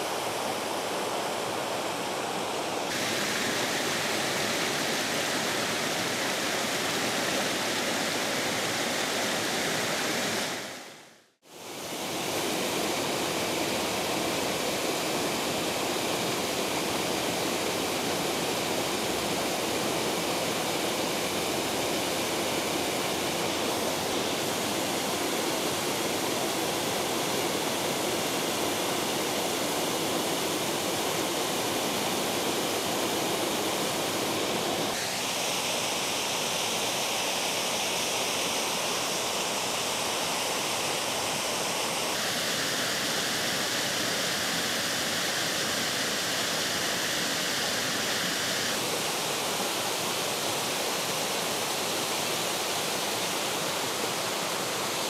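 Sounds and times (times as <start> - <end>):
waterfall rushing: 0.0 - 55.0.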